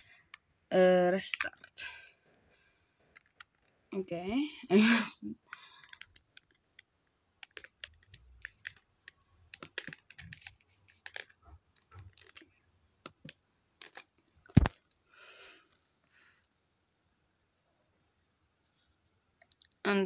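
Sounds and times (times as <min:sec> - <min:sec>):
laptop key and touchpad clicks: 0:05.5 - 0:11.4.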